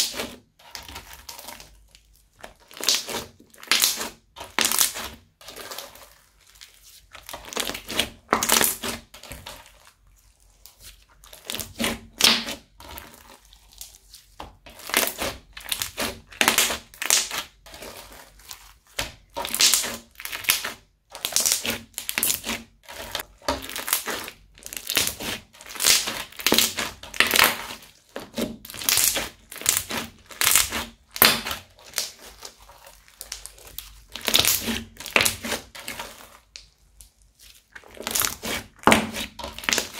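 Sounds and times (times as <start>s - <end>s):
crunchy slime crackling: 0.0s - 39.9s.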